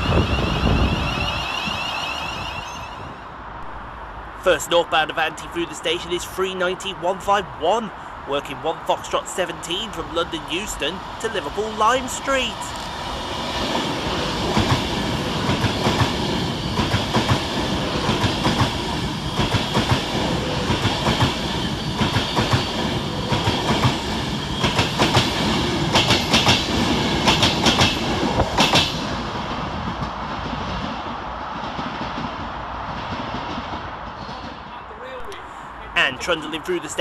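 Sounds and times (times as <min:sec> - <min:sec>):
train wheels clattering over rail joints: 0:24.6 - 0:29.0.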